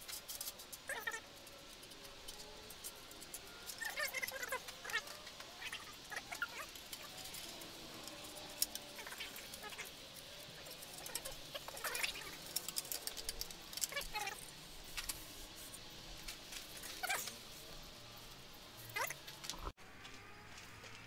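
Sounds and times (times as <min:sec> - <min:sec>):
hand tools clicking and clinking: 0:00.0 - 0:15.3.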